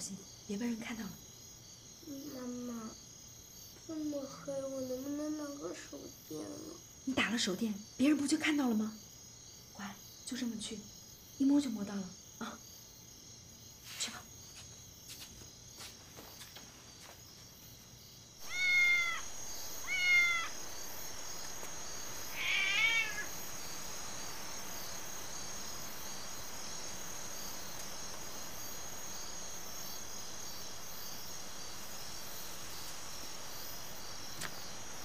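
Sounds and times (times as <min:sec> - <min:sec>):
crickets chirring: 0:00.0 - 0:35.0
cat meowing: 0:18.4 - 0:20.6, 0:22.3 - 0:23.4.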